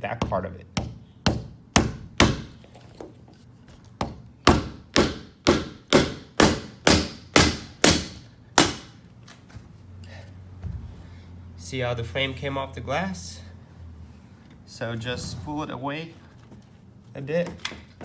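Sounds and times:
rubber mallet striking block: 0.2s - 2.5s, 4.0s - 8.8s.

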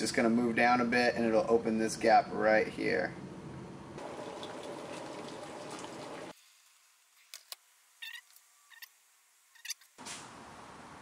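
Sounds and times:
water rushing: 4.0s - 6.3s.

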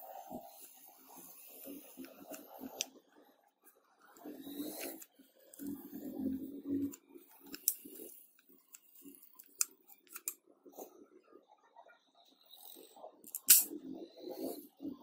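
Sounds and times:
wooden toy gun clicking: 8.7s - 10.4s, 13.3s - 13.7s.

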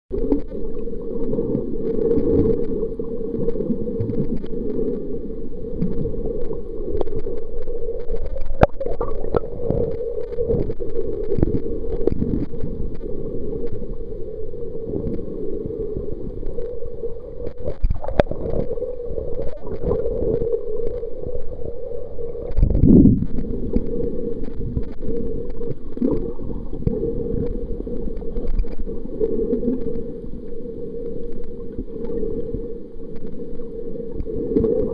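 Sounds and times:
faint clicks: 0.1s - 5.1s, 5.7s - 14.0s, 16.2s - 16.8s, 22.4s - 34.9s
muffled underwater water rush: 0.1s - 34.9s.

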